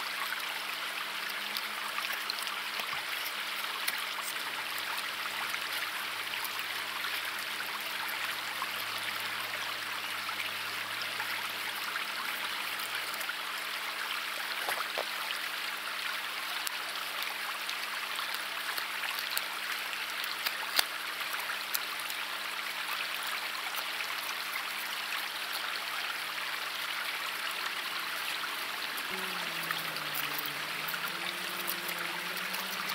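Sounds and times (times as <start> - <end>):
river water rushing: 24.7 - 32.9.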